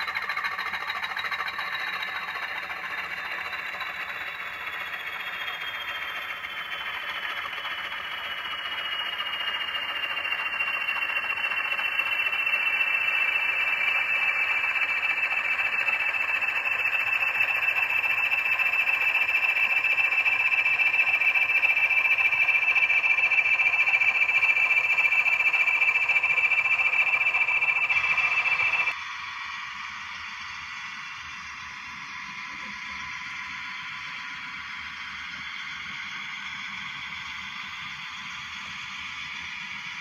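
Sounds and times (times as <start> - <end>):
wheels rolling on track: 0.0 - 29.0
model train motor whine: 0.0 - 40.0.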